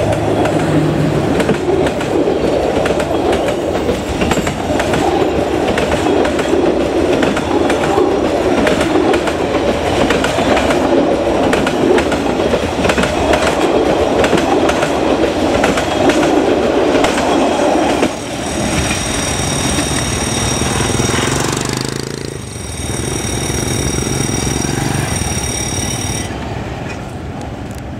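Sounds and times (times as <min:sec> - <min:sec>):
train rumble: 0:00.0 - 0:27.9
train wheels clattering on track: 0:00.0 - 0:27.9
high-pitched whining tones: 0:18.2 - 0:26.4.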